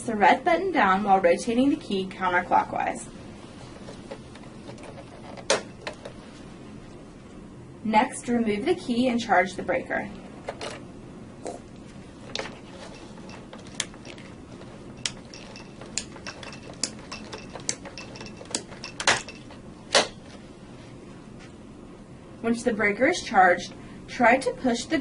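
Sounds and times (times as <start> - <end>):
ratcheting mechanical clicks: 12.4 - 19.6.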